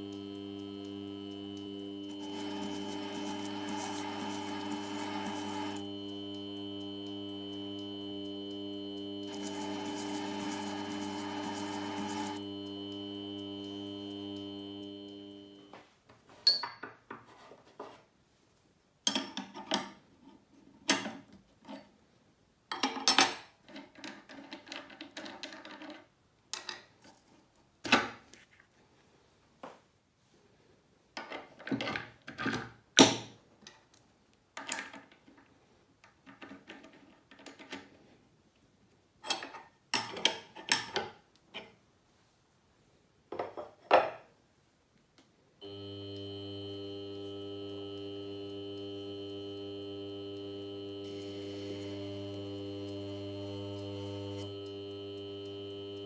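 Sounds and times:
machine hum: 0.0s - 15.7s, 45.6s - 56.0s
metal parts clinking on bench: 16.5s - 17.4s.

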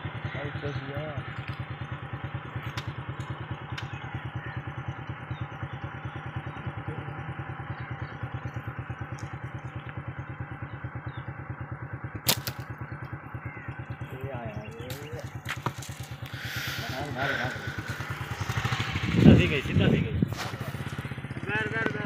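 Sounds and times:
motorcycle engine idling: 0.0s - 22.0s
sharp snap: 12.3s - 12.7s.

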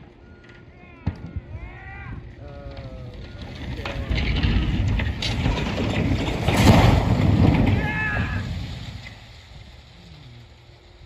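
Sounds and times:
crash of crumpling sheet metal: 4.1s - 9.3s.

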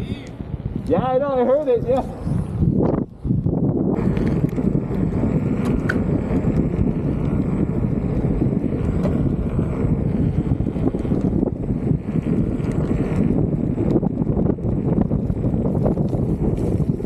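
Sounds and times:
wind buffeting microphone: 0.0s - 17.0s.

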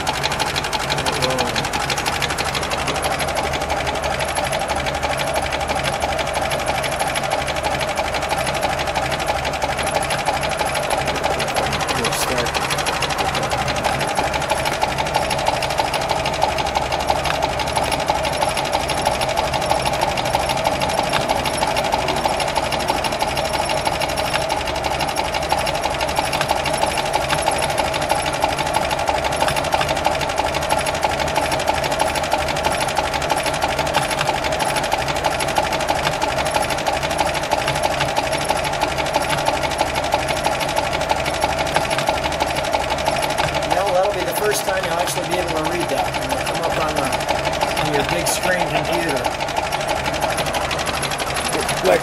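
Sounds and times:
car engine idling with ticking clatter: 0.0s - 52.0s.

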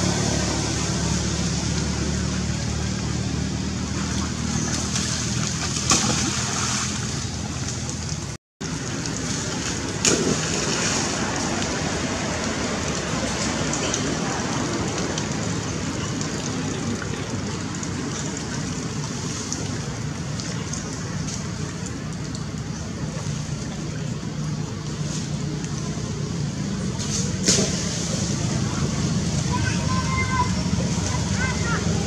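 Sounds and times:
rain falling on a pool: 7.4s - 27.0s, 27.7s - 32.0s.

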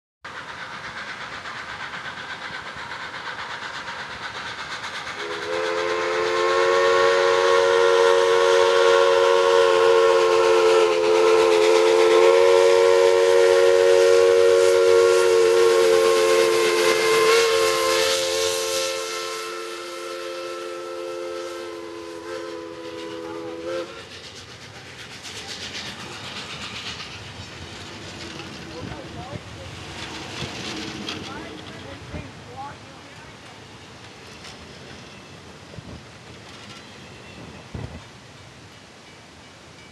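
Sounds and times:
steam locomotive rumble: 0.2s - 39.9s
train wheel clatter: 0.3s - 39.9s
chime steam whistle: 5.1s - 24.2s.

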